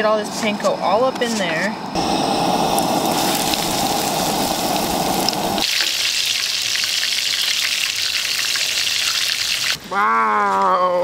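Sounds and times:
dull rushing noise: 2.0s - 5.6s
food sizzling in oil: 2.0s - 9.8s.

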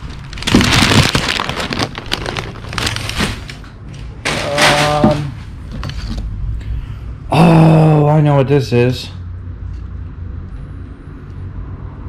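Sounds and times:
packing paper rustling: 0.0s - 5.4s.

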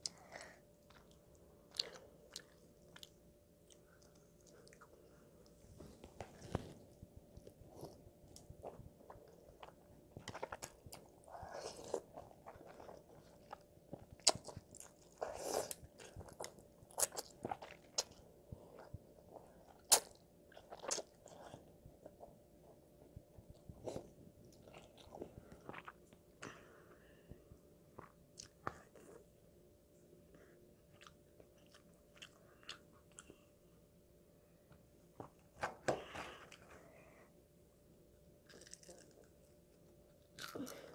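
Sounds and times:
chewing: 0.8s - 5.6s, 6.4s - 22.2s, 23.5s - 26.6s, 30.9s - 33.4s, 38.5s - 39.5s.

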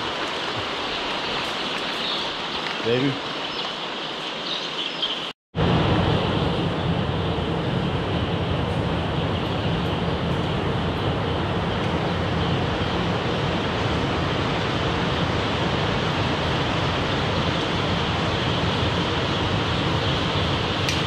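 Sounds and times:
ventilation fans running: 5.6s - 21.0s.

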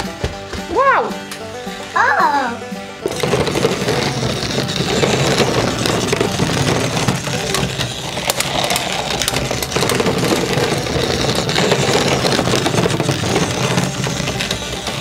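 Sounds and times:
toy truck motor running: 1.2s - 15.0s.

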